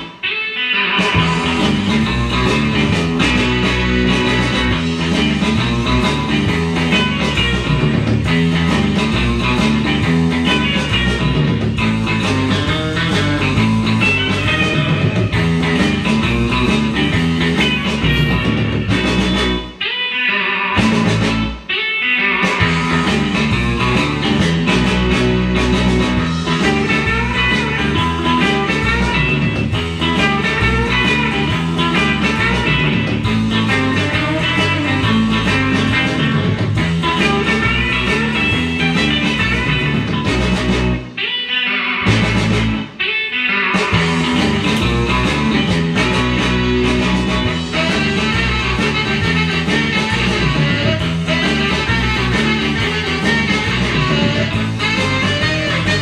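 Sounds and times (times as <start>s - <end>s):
rock and roll guitar music: 0.0s - 56.0s.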